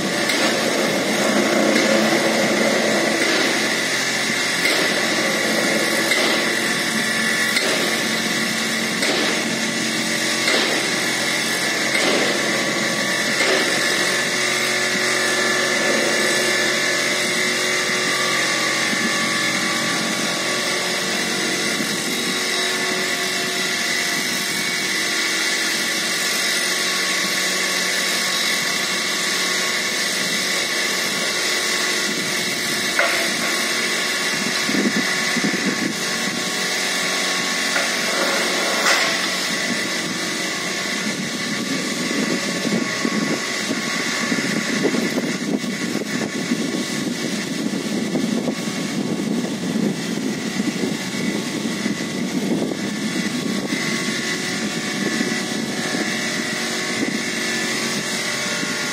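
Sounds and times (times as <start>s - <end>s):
machine engine: 0.0s - 58.9s
piling hammer whine: 0.0s - 58.9s.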